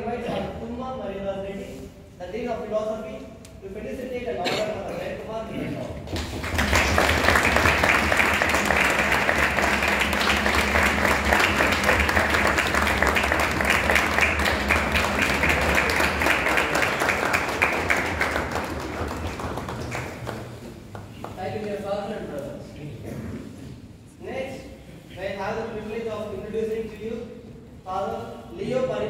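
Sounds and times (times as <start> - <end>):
crowd applauding: 6.1 - 21.3.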